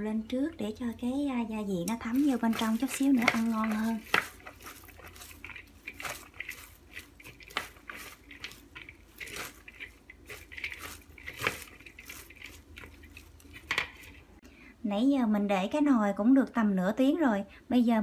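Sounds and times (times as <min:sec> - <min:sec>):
vegetables rustling and squishing: 0:00.6 - 0:14.4
chopsticks clicking: 0:01.8 - 0:14.2.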